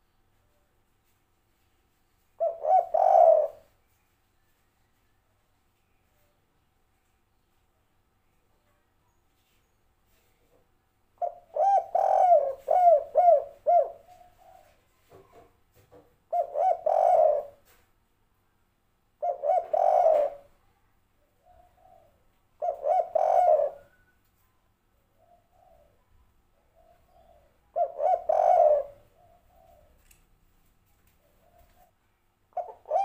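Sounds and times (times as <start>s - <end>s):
dove cooing: 2.4s - 3.7s, 11.2s - 15.4s, 16.3s - 17.8s, 19.2s - 20.6s, 21.4s - 24.1s, 25.2s - 30.0s, 31.2s - 31.9s, 32.6s - 33.0s.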